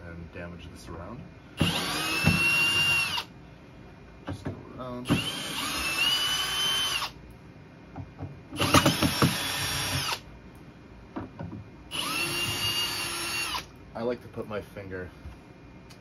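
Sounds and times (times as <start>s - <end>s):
drill motor whining: 1.6s - 3.3s, 5.1s - 7.2s, 8.6s - 10.2s, 11.9s - 13.7s
knocks: 11.1s - 11.7s.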